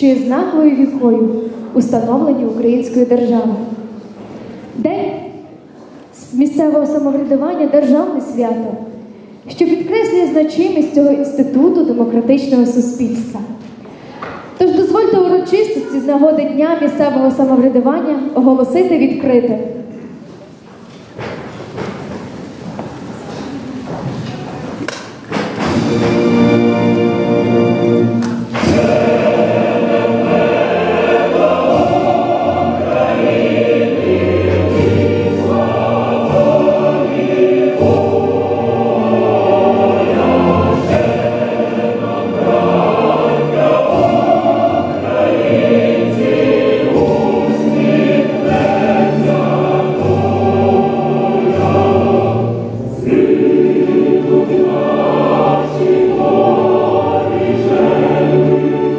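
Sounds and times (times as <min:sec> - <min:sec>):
choir singing held notes: 0:21.7 - 0:58.9.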